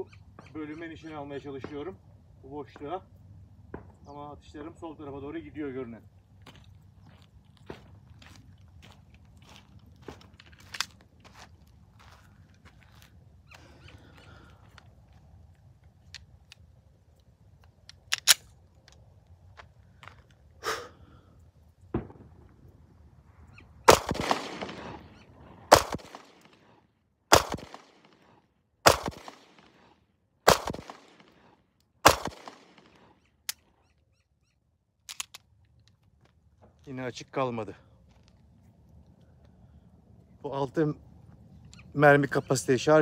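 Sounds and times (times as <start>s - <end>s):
pistol handling clicks: 15.8s - 19.1s, 30.5s - 33.7s, 35.0s - 36.0s
pistol shots: 23.8s - 26.7s, 27.3s - 33.2s.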